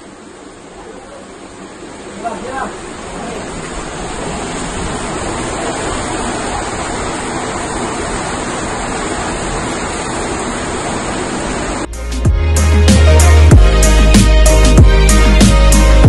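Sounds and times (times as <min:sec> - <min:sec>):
water rushing in a cave: 0:00.0 - 0:11.9.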